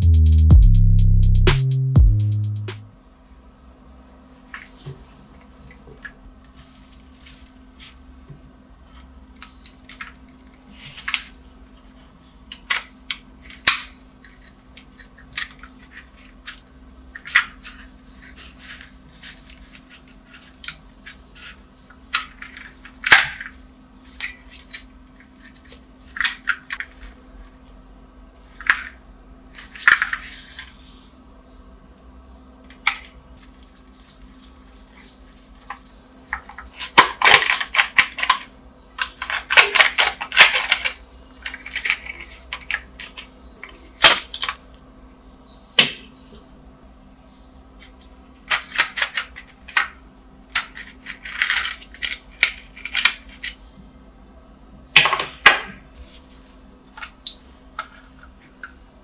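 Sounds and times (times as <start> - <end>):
dried crust cracking: 47.8 - 53.6.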